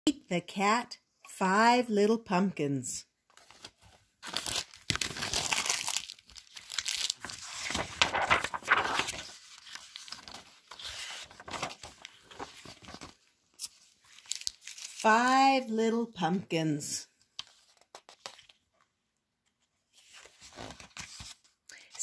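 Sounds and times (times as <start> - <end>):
book pages rustling: 3.3 - 15.0, 17.3 - 18.9, 19.5 - 21.6.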